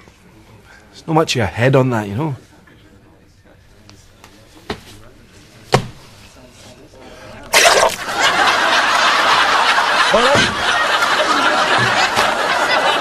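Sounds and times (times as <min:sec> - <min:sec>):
audience laughing: 0:07.5 - 0:13.0.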